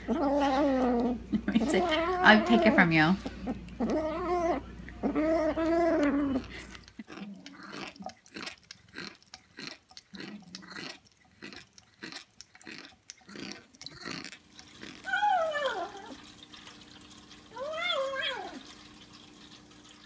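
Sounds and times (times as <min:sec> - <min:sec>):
cat chewing with clicks and smacks: 0:02.6 - 0:15.1.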